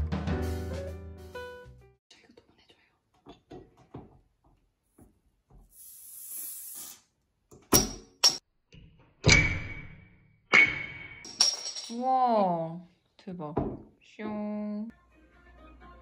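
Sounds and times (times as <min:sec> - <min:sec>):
brief high hiss: 0:05.8 - 0:07.1.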